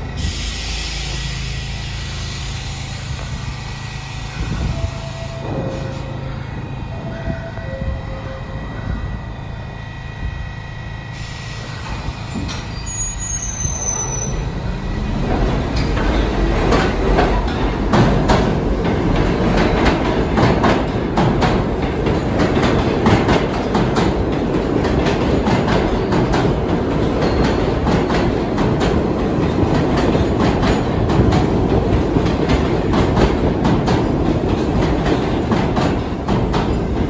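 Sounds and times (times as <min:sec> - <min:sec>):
high train squeal: 0:00.0 - 0:17.7
subway train rumble: 0:00.0 - 0:37.0.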